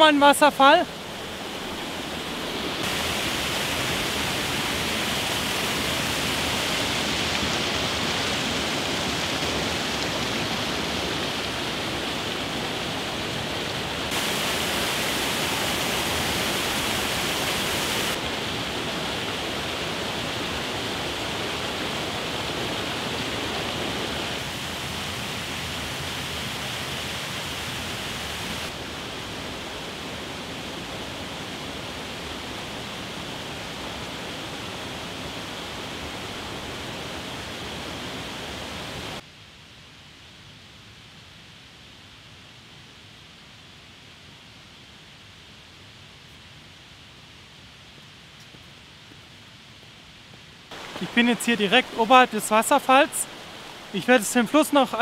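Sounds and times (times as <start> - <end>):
waterfall rushing: 0.0 - 39.2, 50.7 - 55.0
water splashing onto rocks: 50.7 - 55.0.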